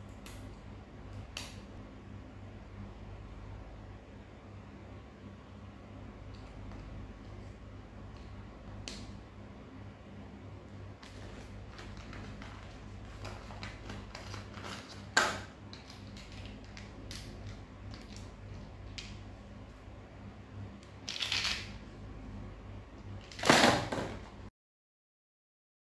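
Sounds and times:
plastic bag crinkling: 0:11.0 - 0:18.3.

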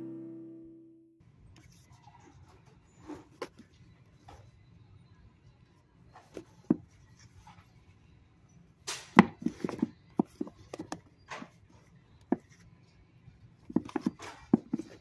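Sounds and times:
background music: 0:00.0 - 0:00.9
low steady hum: 0:00.0 - 0:01.6.

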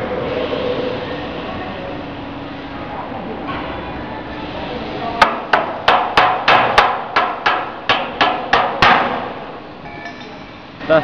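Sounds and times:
hammer striking metal: 0:05.2 - 0:09.3.

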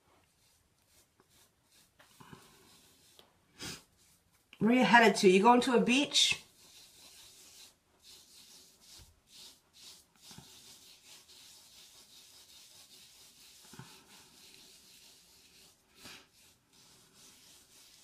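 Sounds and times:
fingertips rubbing scrub on skin: 0:06.4 - 0:18.0.

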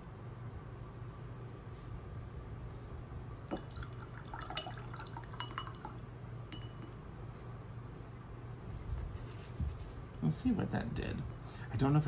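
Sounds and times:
brush clinking against glass: 0:03.5 - 0:07.0.

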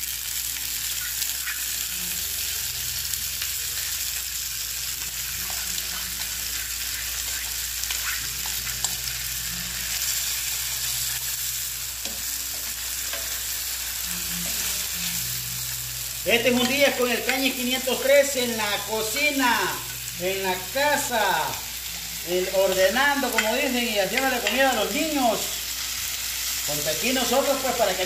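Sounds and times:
oil sizzling in frying pan: 0:00.0 - 0:28.0
spatula scraping pan: 0:12.0 - 0:15.2.

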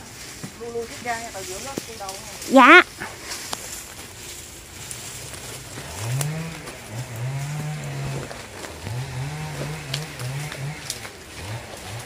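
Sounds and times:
chainsaw revving: 0:05.2 - 0:12.0.

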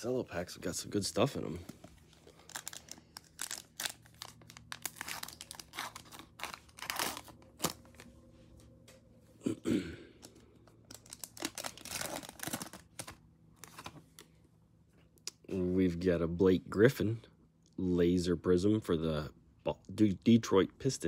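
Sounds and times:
plastic wrapper crinkling and tearing: 0:02.0 - 0:08.1, 0:10.2 - 0:14.0.

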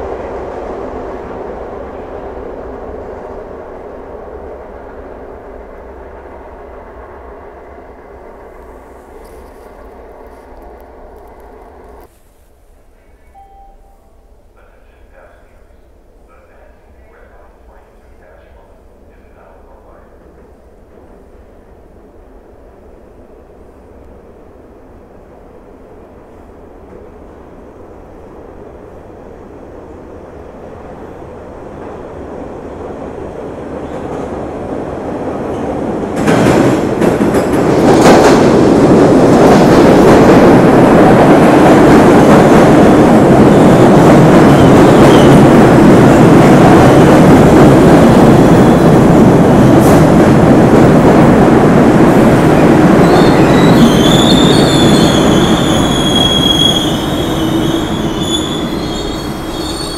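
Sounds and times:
train wheels rumbling on rails: 0:28.3 - 0:59.9
high wheel squeal: 0:53.0 - 0:59.9.

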